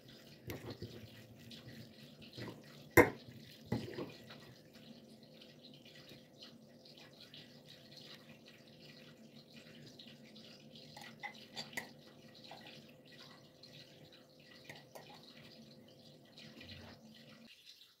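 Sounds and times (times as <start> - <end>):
spoon clicking and scraping: 11.0 - 12.0.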